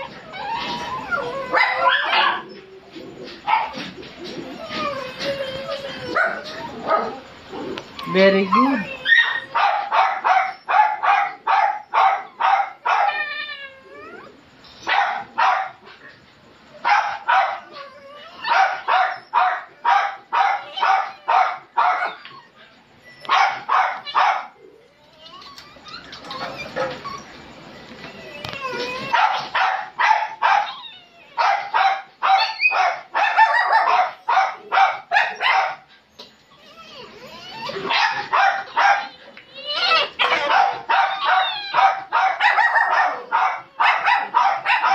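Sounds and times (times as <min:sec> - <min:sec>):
dog whining: 0:00.0 - 0:15.0, 0:16.0 - 0:44.9
small dog barking: 0:09.1 - 0:13.1, 0:14.9 - 0:15.8, 0:16.8 - 0:17.7, 0:18.5 - 0:22.2, 0:23.3 - 0:24.5, 0:29.1 - 0:30.7, 0:31.4 - 0:35.8, 0:37.8 - 0:39.1, 0:40.2 - 0:44.9.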